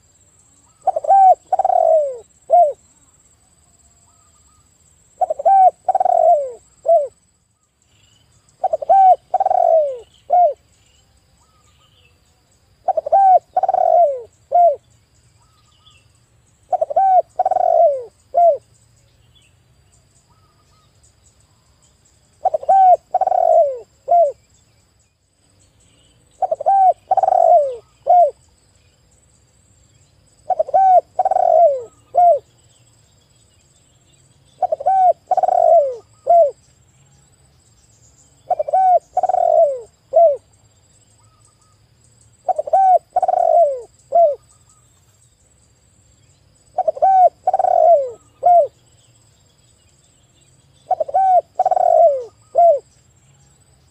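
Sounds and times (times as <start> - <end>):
dove cooing: 0.7 - 2.8, 5.2 - 7.2, 8.6 - 10.6, 12.8 - 14.8, 16.7 - 18.6, 22.4 - 24.4, 26.4 - 28.4, 30.4 - 32.5, 34.6 - 36.6, 38.5 - 40.5, 42.4 - 44.4, 46.7 - 48.8, 50.8 - 52.9.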